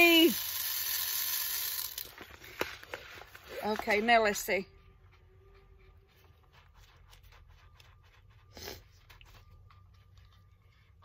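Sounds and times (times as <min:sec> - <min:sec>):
faint plastic rustling: 0:02.0 - 0:04.5.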